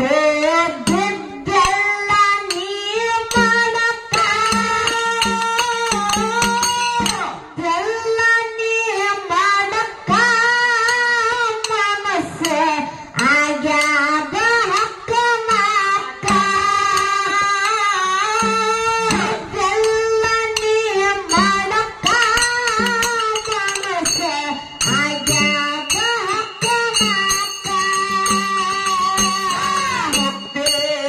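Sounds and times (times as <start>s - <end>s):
young woman singing folk song: 0.0s - 31.0s
sustained instrumental tone: 16.2s - 31.0s.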